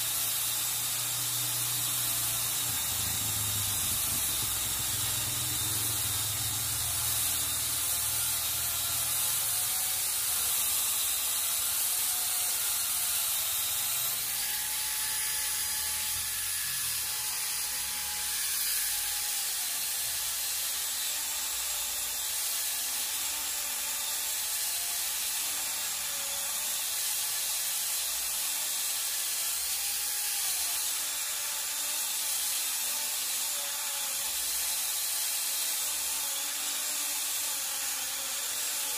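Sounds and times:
motor whine: 0:00.0 - 0:19.4
chain cutting through wood: 0:00.0 - 0:25.3, 0:26.2 - 0:38.9.

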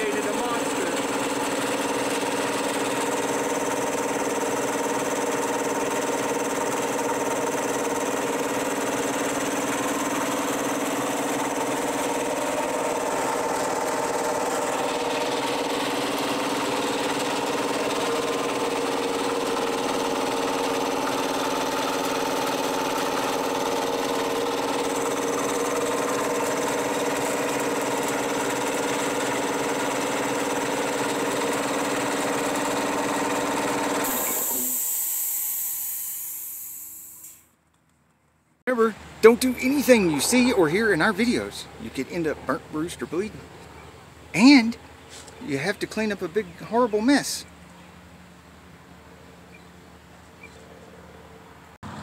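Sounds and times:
air compressor running: 0:00.0 - 0:37.6.

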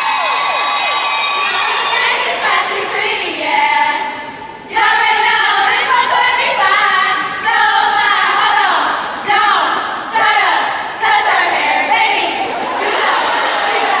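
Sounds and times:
women singing in unison: 0:01.4 - 0:14.0.

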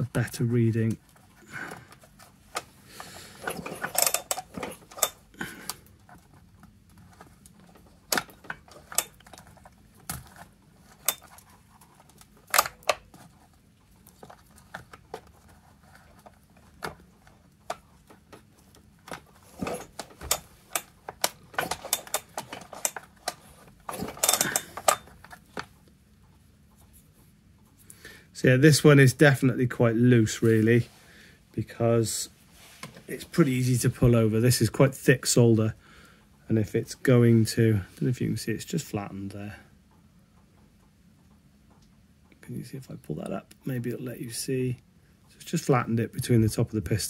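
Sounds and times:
handling of tools: 0:00.8 - 0:25.8.

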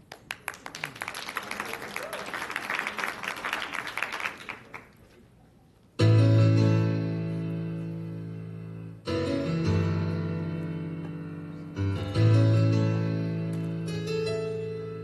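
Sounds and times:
audience clapping: 0:00.0 - 0:05.1
recorded accompaniment chord: 0:06.0 - 0:15.0.

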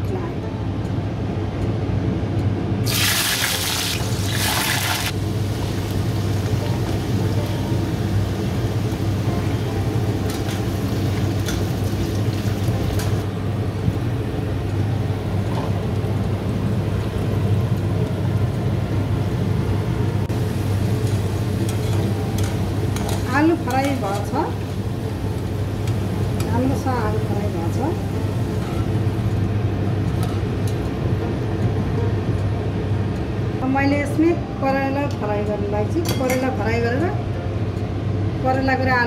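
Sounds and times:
potatoes sizzling in hot oil: 0:02.9 - 0:13.2.

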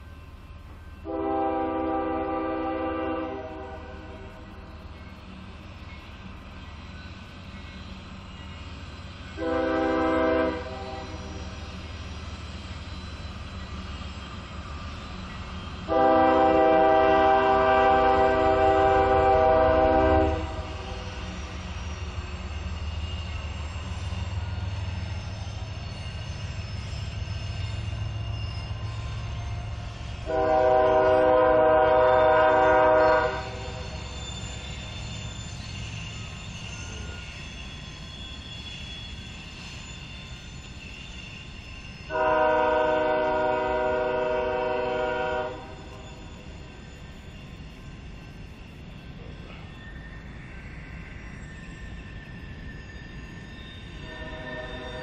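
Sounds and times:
low rumble of approaching train: 0:00.0 - 0:55.0
locomotive air horn blasts: 0:01.0 - 0:04.2, 0:09.4 - 0:11.1, 0:15.9 - 0:20.9, 0:30.2 - 0:33.8, 0:42.1 - 0:46.0, 0:54.1 - 0:55.0.

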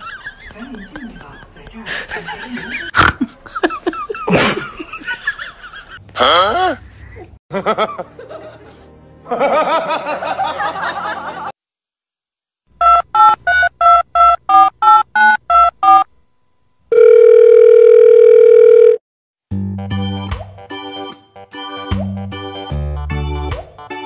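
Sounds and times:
steady telephone tone: 0:16.9 - 0:19.0.

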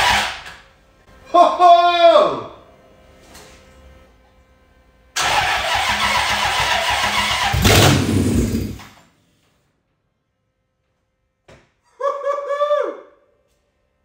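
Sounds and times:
engine firing briefly: 0:05.2 - 0:09.0
engine starter cranking: 0:05.2 - 0:09.0.

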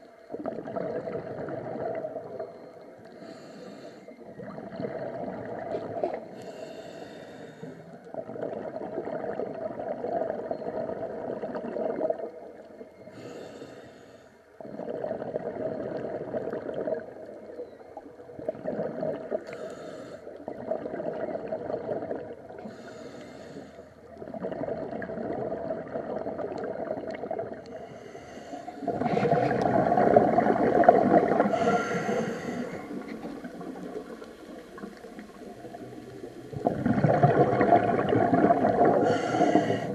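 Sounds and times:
bubbling exhale underwater: 0:00.0 - 0:03.5, 0:04.1 - 0:06.6, 0:08.1 - 0:13.2, 0:14.6 - 0:23.0, 0:24.1 - 0:39.9
regulator inhale hiss: 0:03.1 - 0:04.3, 0:06.3 - 0:08.0, 0:13.1 - 0:14.5, 0:19.4 - 0:20.4, 0:22.6 - 0:24.1, 0:27.7 - 0:29.4, 0:31.2 - 0:33.2, 0:39.0 - 0:39.9.

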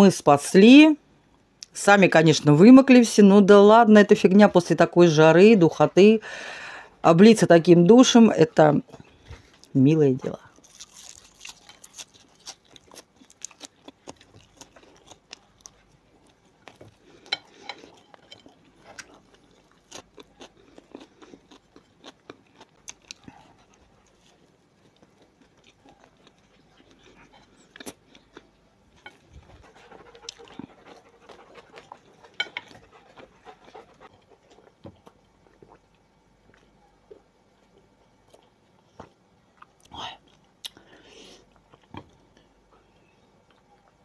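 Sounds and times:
crisp bites and chewing: 0:10.5 - 0:29.2
wet mouth clicks and smacks: 0:40.6 - 0:40.8.

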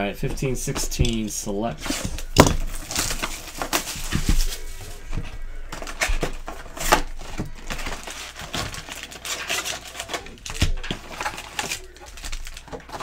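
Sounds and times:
foil packs crinkling and rustling: 0:01.1 - 0:13.0
cardboard box tearing: 0:01.8 - 0:05.0.

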